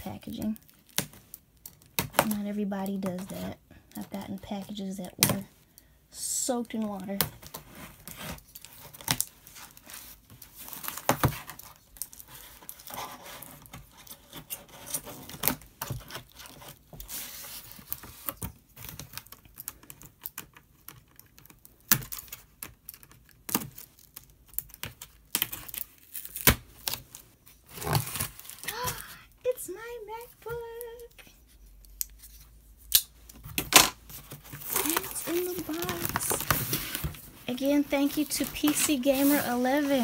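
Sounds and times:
tape and cardboard tearing: 0:07.4 - 0:29.2, 0:32.0 - 0:40.0.

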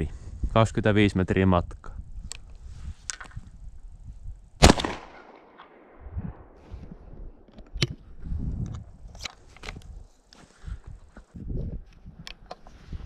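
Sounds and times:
shotgun shot with echo: 0:04.6 - 0:06.0.

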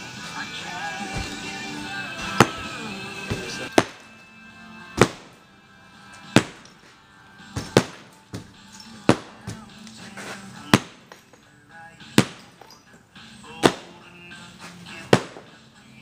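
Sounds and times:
faint music: 0:00.0 - 0:16.0
hammer striking brickwork: 0:10.7 - 0:11.3.

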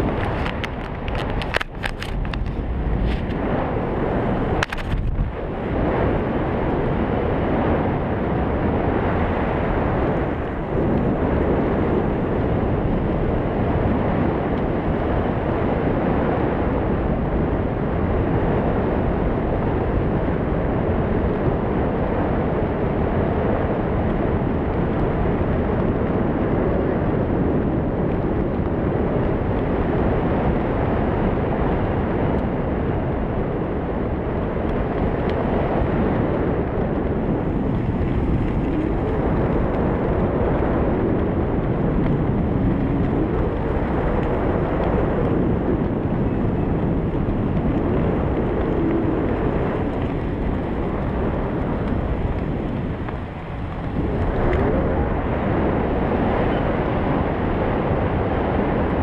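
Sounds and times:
wind rushing over microphone: 0:00.0 - 0:59.0.

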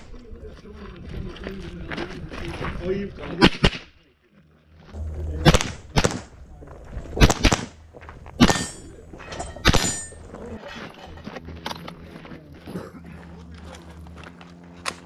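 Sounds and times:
rifle shots with echo: 0:05.4 - 0:06.4, 0:07.2 - 0:07.8.

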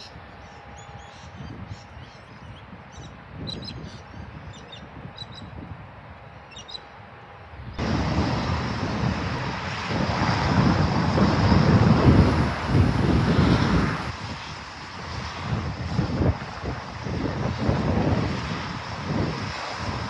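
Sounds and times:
small birds chirping: 0:00.0 - 0:05.5, 0:06.4 - 0:06.9
wind on microphone: 0:00.0 - 0:06.8, 0:07.4 - 0:20.0
low rumble: 0:07.6 - 0:14.4.

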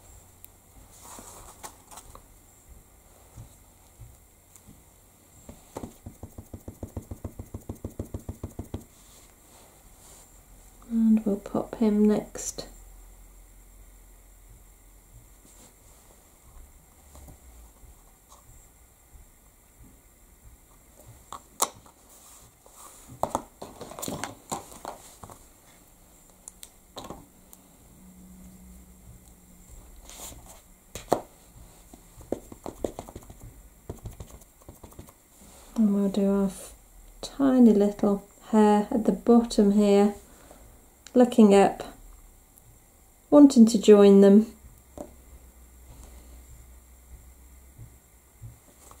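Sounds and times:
sharp knock on desk: 0:05.8 - 0:08.9
stamp block tapping ink pad: 0:05.8 - 0:08.9.

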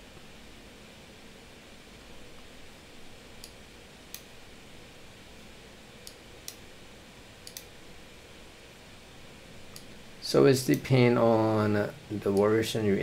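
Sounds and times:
faint room hiss: 0:00.0 - 0:13.0
computer mouse clicking: 0:06.0 - 0:06.6, 0:07.4 - 0:07.7, 0:09.7 - 0:10.0, 0:10.6 - 0:10.9.

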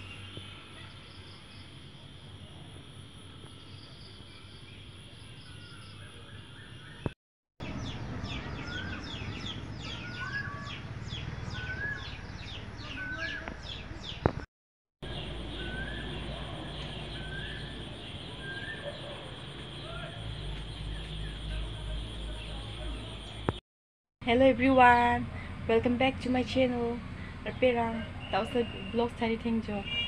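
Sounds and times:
birds twittering: 0:03.4 - 0:14.4, 0:15.0 - 0:23.6
bird rising chirp: 0:03.6 - 0:14.3, 0:15.0 - 0:21.6
high insect trill: 0:15.0 - 0:23.6.

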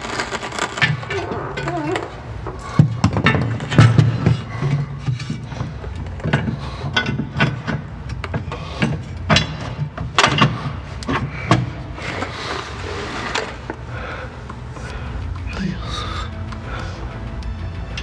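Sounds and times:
steady low hum: 0:00.0 - 0:18.0
tools knocking and clicking: 0:02.8 - 0:11.7.

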